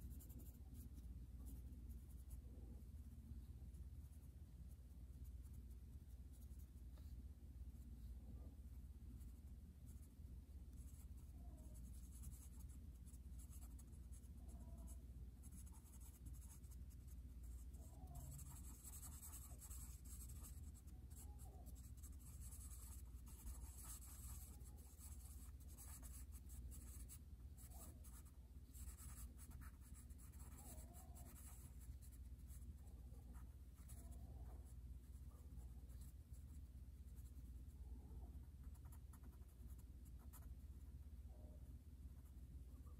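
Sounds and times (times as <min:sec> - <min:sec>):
low steady hum: 0:00.0 - 0:42.9
pencil scratching on paper: 0:10.7 - 0:36.2, 0:38.6 - 0:40.5.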